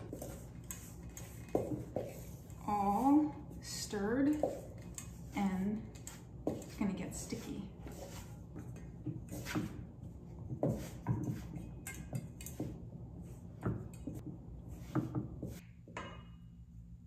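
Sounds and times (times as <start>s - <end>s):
wooden spoon scraping metal bowl: 0.0s - 9.8s.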